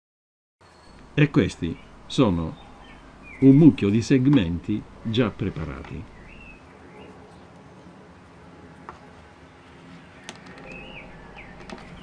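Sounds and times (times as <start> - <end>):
bird chirping faintly: 0.6 - 8.1, 9.4 - 12.0
low room hum: 0.7 - 12.0
wooden blocks clicking: 10.2 - 10.8.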